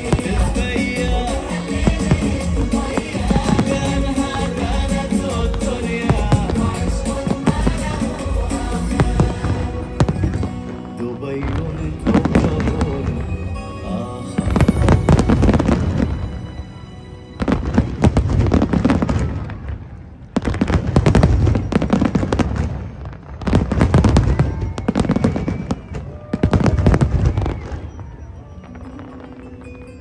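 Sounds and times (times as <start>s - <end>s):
fireworks booming and crackling: 0.0s - 16.7s, 17.4s - 30.0s
show music: 0.0s - 19.2s.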